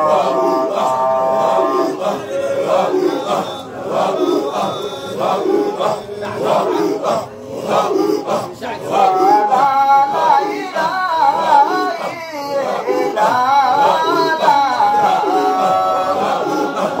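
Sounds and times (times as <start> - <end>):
group of voices chanting: 0.0 - 17.0.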